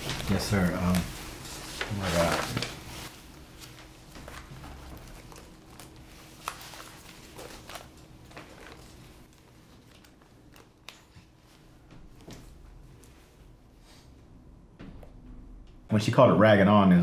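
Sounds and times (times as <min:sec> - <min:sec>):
paper rustling: 0:00.0 - 0:13.3.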